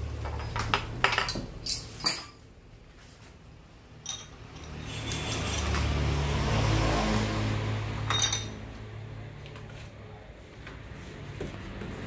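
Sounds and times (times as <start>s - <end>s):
metal tools clinking on table: 0.2s - 2.6s, 4.0s - 5.8s, 8.0s - 8.6s.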